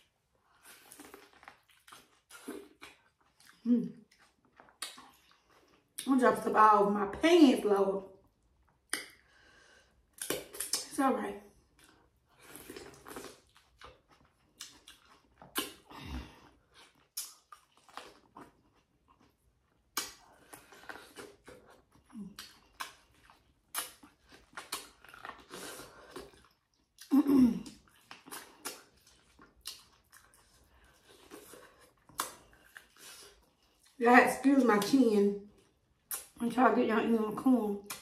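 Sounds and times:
person chewing corn: 0:00.0 - 0:06.1, 0:08.2 - 0:34.0, 0:35.5 - 0:36.4
wet mouth smacks: 0:04.6 - 0:05.3, 0:08.8 - 0:09.2, 0:10.2 - 0:10.9, 0:14.6 - 0:15.9, 0:19.9 - 0:20.3, 0:23.7 - 0:25.4, 0:26.2 - 0:30.3, 0:32.1 - 0:32.4, 0:36.1 - 0:36.4.

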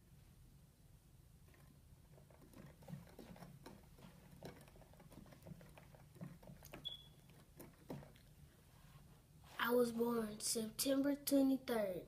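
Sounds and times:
faint high squeak: 0:06.7 - 0:07.3.

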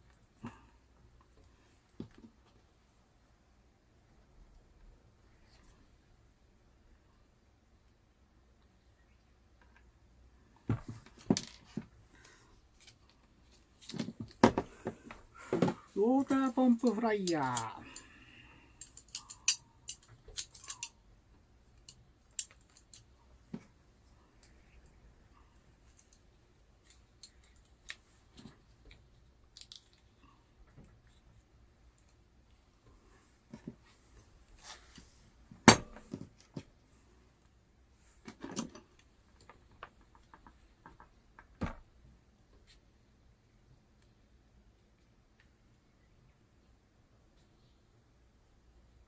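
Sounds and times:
clicks of plastic model parts: 0:18.8 - 0:20.9, 0:21.8 - 0:23.1, 0:26.8 - 0:30.1.

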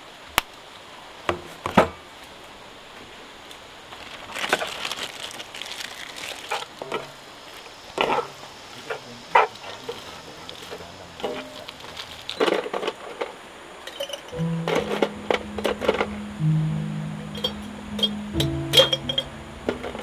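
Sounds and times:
steady background hiss: 0:00.0 - 0:20.0
knocks and clatter of wood: 0:12.4 - 0:13.4.

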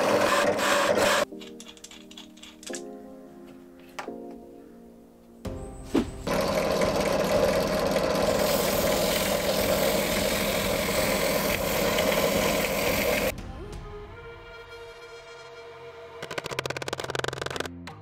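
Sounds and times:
power tool cutting plywood: 0:00.0 - 0:01.2, 0:06.3 - 0:13.3
background music: 0:00.2 - 0:18.0.

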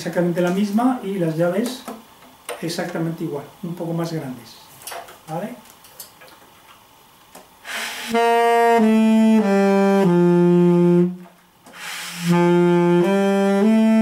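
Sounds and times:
tenor saxophone notes: 0:07.7 - 0:14.0.

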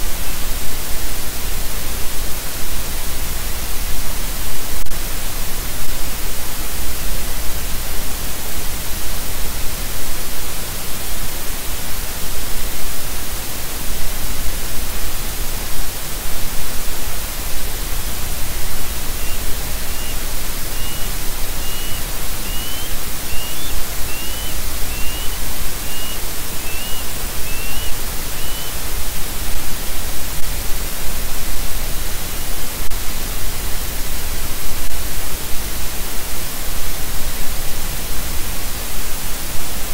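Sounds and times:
microphone static hiss: 0:00.0 - 0:39.9
bird chirping faintly: 0:18.6 - 0:28.8.

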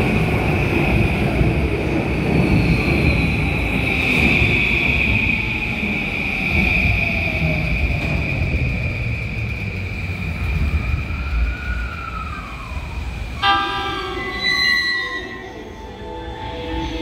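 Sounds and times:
train horn blast: 0:13.4 - 0:15.4.

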